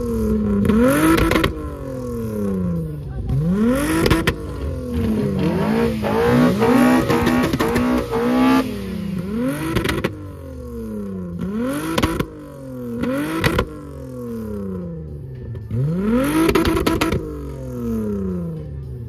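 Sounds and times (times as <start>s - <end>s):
car engine revving: 0.0s - 19.0s
exhaust cracks: 3.4s - 14.8s.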